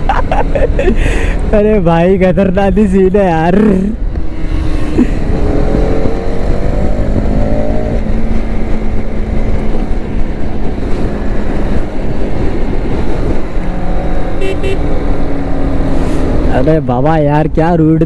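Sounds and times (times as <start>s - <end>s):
wind rush on microphone: 0.0s - 17.7s
motorcycle engine accelerating: 3.5s - 16.7s.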